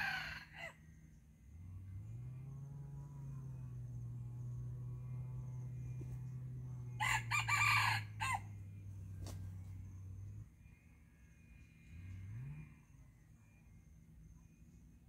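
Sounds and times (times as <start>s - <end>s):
rooster crowing: 0.0s - 0.8s, 6.9s - 8.6s
low steady hum: 0.0s - 15.0s.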